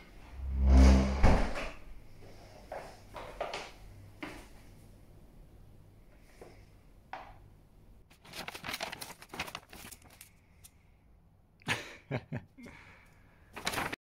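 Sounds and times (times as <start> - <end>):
paper bag rustling: 8.1 - 10.7, 13.5 - 14.0.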